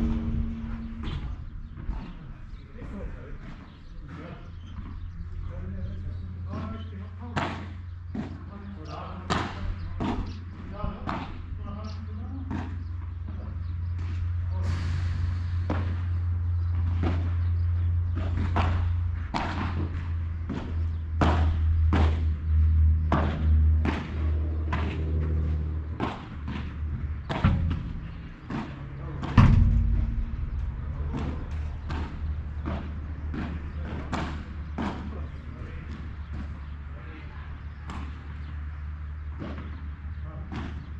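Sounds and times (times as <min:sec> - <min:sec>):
low rumble: 0:00.0 - 0:06.5, 0:13.6 - 0:37.0
padel ball knocks: 0:26.0 - 0:35.2.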